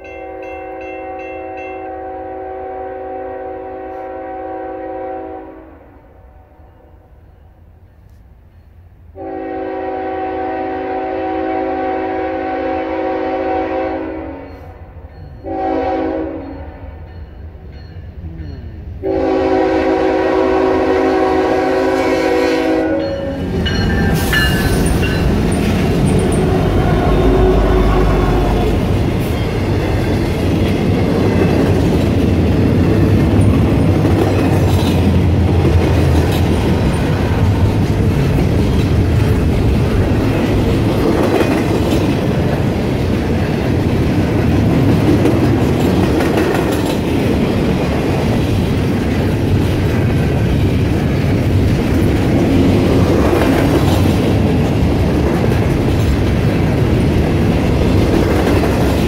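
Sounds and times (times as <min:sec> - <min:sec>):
train wheels rumbling on rail: 0:07.3 - 0:59.0
wheels clacking over rail joints: 0:28.6 - 0:59.0.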